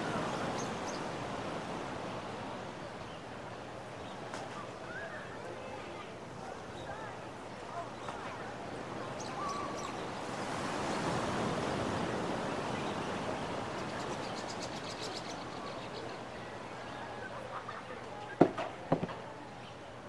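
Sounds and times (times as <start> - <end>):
surf washing onto beach: 6.6 - 15.1
sharp knocks: 18.4 - 19.2.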